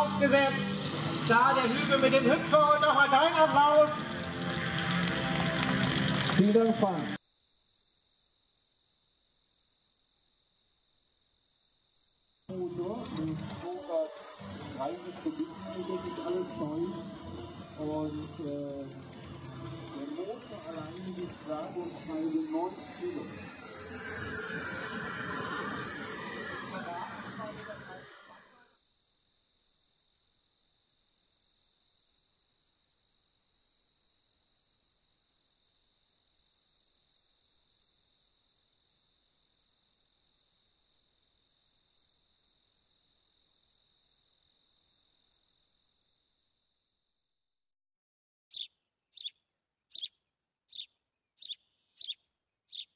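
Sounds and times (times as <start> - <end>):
insect trilling: 7.2 - 44.2
high bird chirps: 48.5 - 52.9.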